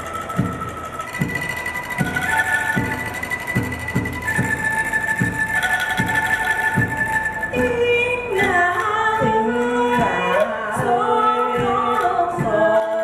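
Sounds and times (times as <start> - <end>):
bamboo instruments struck: 0.0 - 13.0
woman singing: 7.5 - 13.0.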